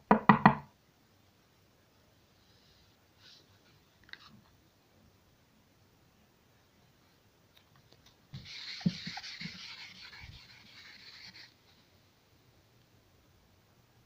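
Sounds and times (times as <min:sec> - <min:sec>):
knocks on whiteboard: 0:00.1 - 0:00.7
cloth scrubbing whiteboard: 0:08.3 - 0:11.9.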